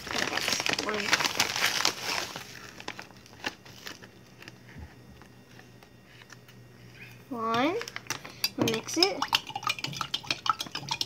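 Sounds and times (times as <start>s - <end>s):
plastic packet crinkling: 0.0s - 4.6s.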